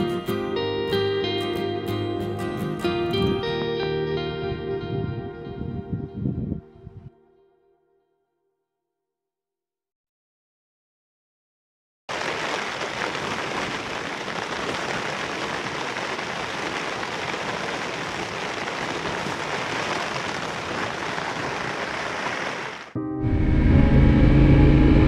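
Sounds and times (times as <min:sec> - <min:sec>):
rain on tent fabric: 0:12.1 - 0:23.0.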